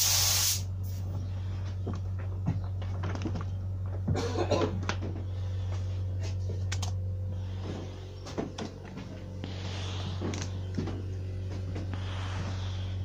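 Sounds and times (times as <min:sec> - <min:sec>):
short hiss: 0:00.0 - 0:00.6
steady low hum: 0:00.0 - 0:13.0.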